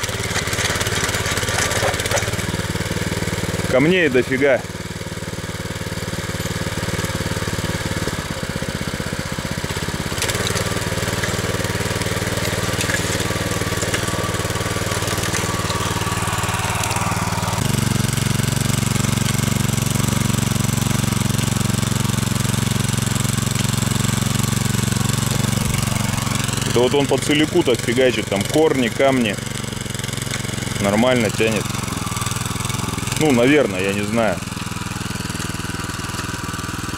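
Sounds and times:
walk-behind tractor engine: 0.0 - 36.9.

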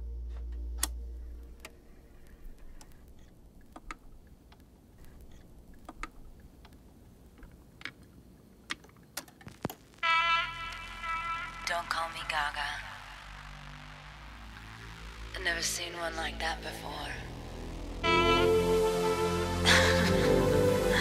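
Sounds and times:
low hum: 0.0 - 7.7, 9.9 - 21.0
record player clicks and pops: 0.8 - 10.0.

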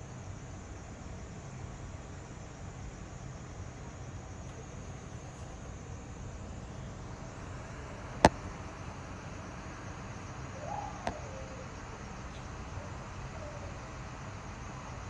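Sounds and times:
low background noise: 0.0 - 15.0
faint wavering tone: 6.3 - 14.0.

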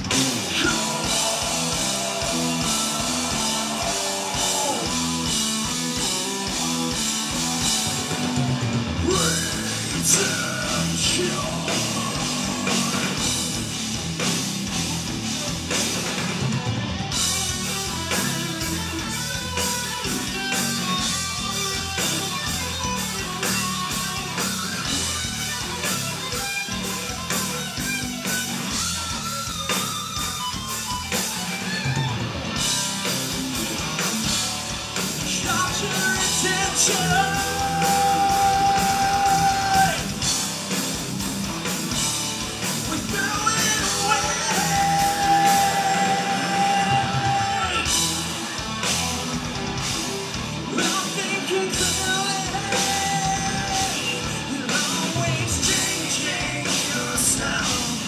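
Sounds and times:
drum kit: 0.0 - 58.0
electric guitars: 0.0 - 58.0
person singing long notes: 35.5 - 40.0.

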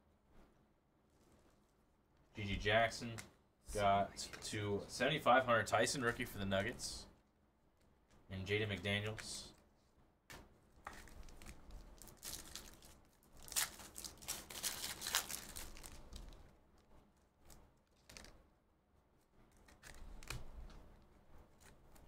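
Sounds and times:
wrapper tearing and crinkling: 10.8 - 16.5, 17.5 - 18.3.

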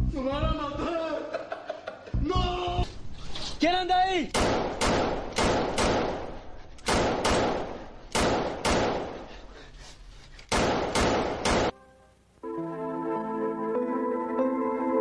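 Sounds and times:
loud bangs: 4.3 - 9.4, 10.5 - 11.8.

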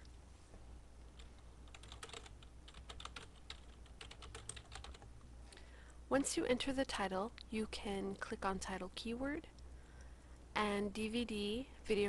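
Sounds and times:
typing on computer keyboard: 1.2 - 5.1.

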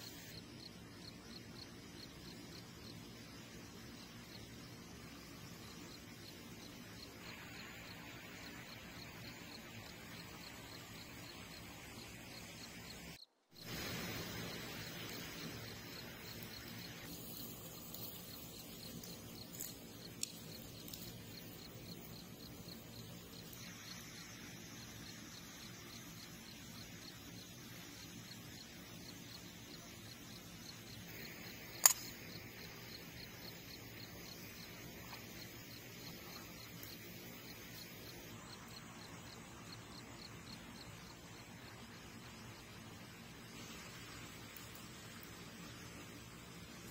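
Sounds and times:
faint outdoor hiss: 0.0 - 46.9
sharp snap: 31.8 - 32.3.

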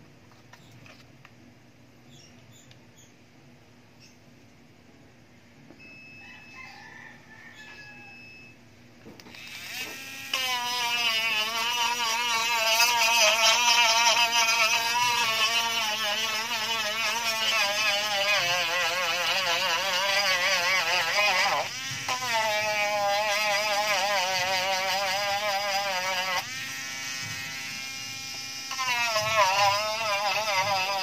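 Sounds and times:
rotary tool grinding: 9.3 - 31.0.

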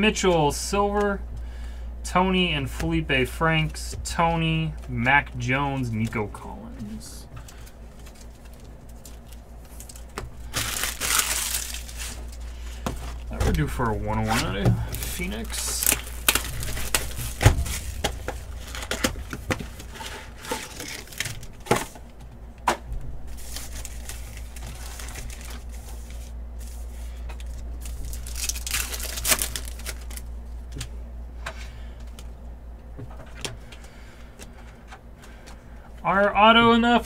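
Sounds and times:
wrappers crinkling and tearing: 7.4 - 22.0, 23.3 - 30.3.

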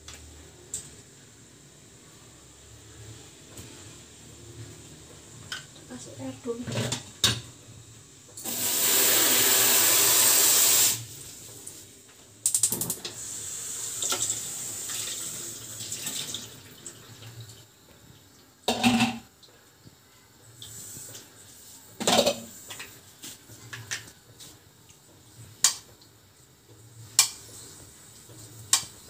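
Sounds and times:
water gushing: 8.4 - 11.4, 13.2 - 17.7.

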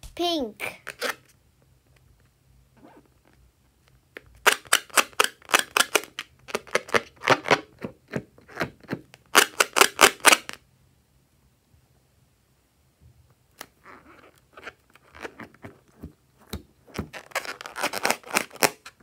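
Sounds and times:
balloon rubbing crackles: 13.8 - 19.0.

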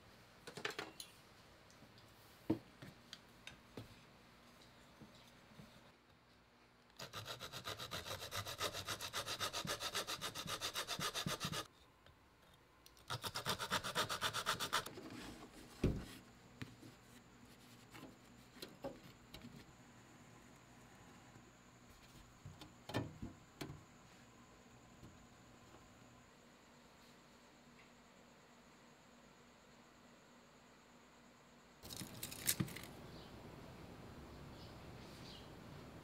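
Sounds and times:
hacksaw cutting wood: 7.0 - 11.7, 13.1 - 14.9.

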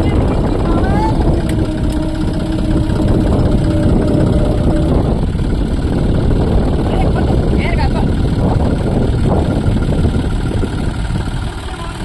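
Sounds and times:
steady tone: 0.0 - 11.4
tractor diesel engines running: 0.0 - 12.0.

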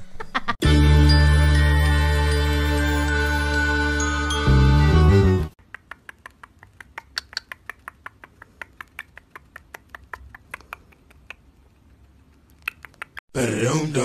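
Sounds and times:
bird beak clicking: 5.6 - 13.2.

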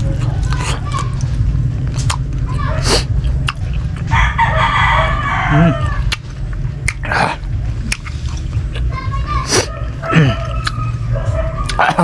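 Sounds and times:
low hum: 0.0 - 12.0
rooster crowing: 4.1 - 6.1
eating clicks: 5.9 - 8.9, 9.5 - 10.9.

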